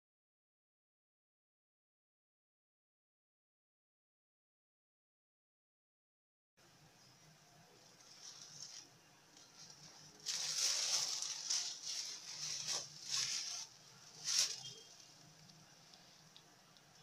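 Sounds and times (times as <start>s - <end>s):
cloth and plastic bag rustling: 7.8s - 16.3s.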